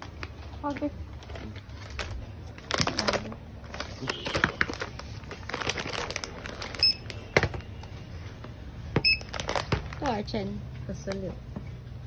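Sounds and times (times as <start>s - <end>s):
plastic packaging crinkling: 0.0s - 8.0s, 9.2s - 10.3s
barcode scanner beeps: 6.8s - 7.2s, 9.0s - 9.3s.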